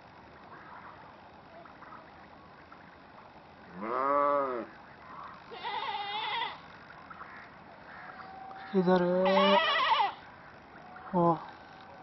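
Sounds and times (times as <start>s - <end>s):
drawn-out animal calls: 0.6s - 12.0s.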